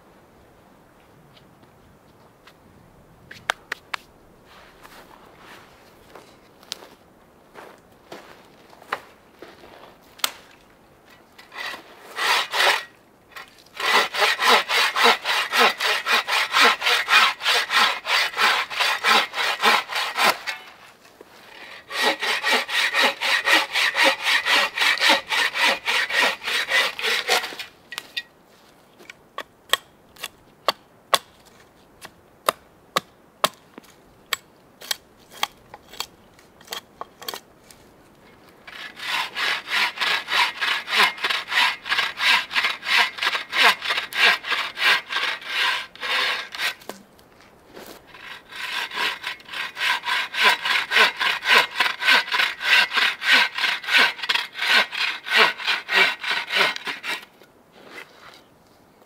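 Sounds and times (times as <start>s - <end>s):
bow saw cutting wood: 11.4s - 27.7s, 38.7s - 47.0s, 47.9s - 57.3s.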